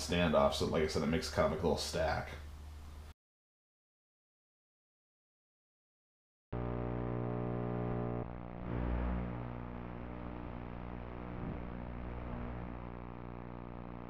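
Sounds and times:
electrical buzz and static: 0:06.6 - 0:14.0.

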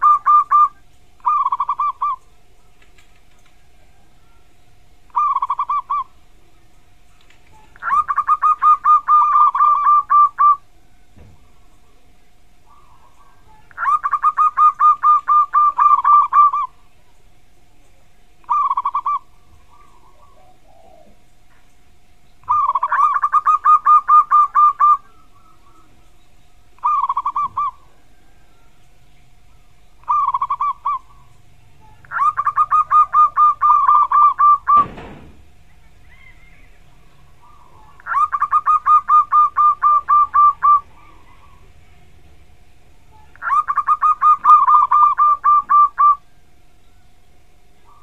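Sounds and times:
dove cooing: 0:00.0 - 0:17.1, 0:18.0 - 0:21.7, 0:22.4 - 0:46.4, 0:47.8 - 0:48.0
brief thump: 0:34.8 - 0:35.4.

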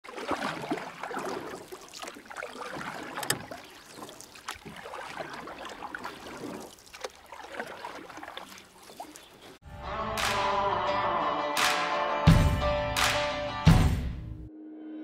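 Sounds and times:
underwater rushing and bubbling water: 0:00.0 - 0:09.6.

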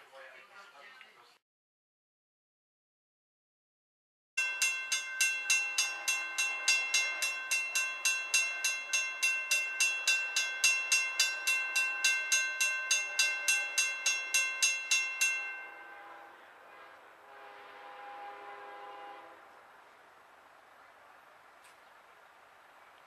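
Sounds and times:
railroad crossing bell ringing: 0:04.4 - 0:16.5.

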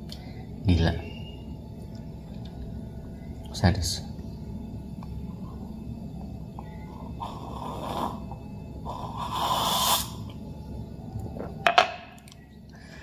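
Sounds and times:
person slurping hot drink: 0:07.2 - 0:08.3, 0:08.9 - 0:10.2.

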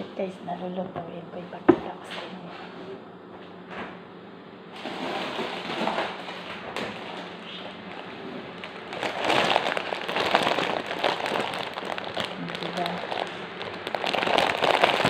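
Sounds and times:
plastic bag crinkling: 0:07.0 - 0:15.0.

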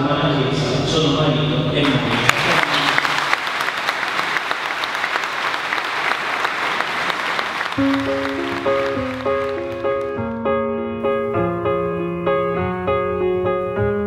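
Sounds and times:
people applauding: 0:01.8 - 0:10.2
slow piano music: 0:07.6 - 0:14.0.

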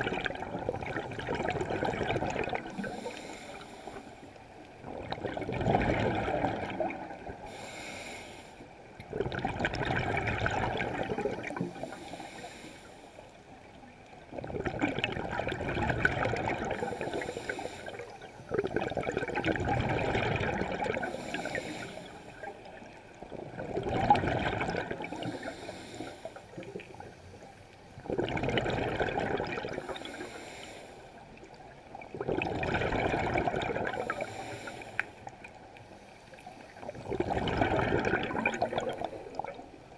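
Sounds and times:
exhaled bubbles rushing: 0:00.0 - 0:03.1, 0:04.8 - 0:07.4, 0:09.0 - 0:11.9, 0:14.3 - 0:17.3, 0:17.9 - 0:21.3, 0:22.4 - 0:25.5, 0:28.0 - 0:30.1, 0:31.9 - 0:34.4, 0:36.7 - 0:39.8
regulator inhalation hiss: 0:02.8 - 0:04.1, 0:07.5 - 0:08.6, 0:16.8 - 0:18.1, 0:21.1 - 0:22.5, 0:25.2 - 0:26.5, 0:29.9 - 0:31.1, 0:34.0 - 0:35.1.

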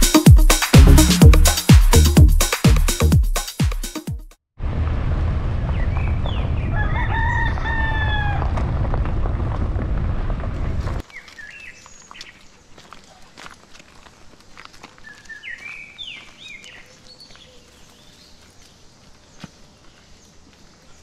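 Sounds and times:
loud low rumble: 0:00.8 - 0:01.6
rooster crowing: 0:06.6 - 0:08.6.

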